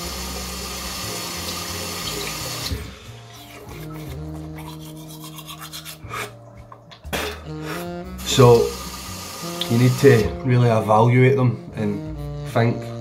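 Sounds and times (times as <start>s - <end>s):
water running from tap: 0.0s - 3.6s, 8.2s - 10.4s.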